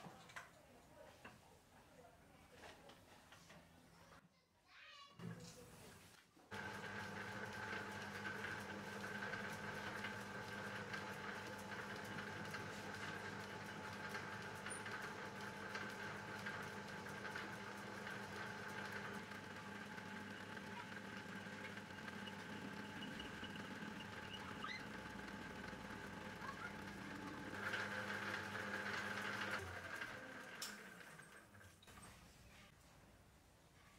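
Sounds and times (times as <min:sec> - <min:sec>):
lathe motor humming and whining: 0:06.5 - 0:31.0
lathe tool cutting steel: 0:06.6 - 0:30.9.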